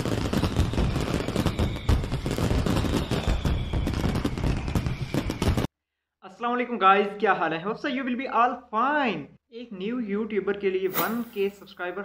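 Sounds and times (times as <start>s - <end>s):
fireworks crackling bangs: 0.0s - 5.7s.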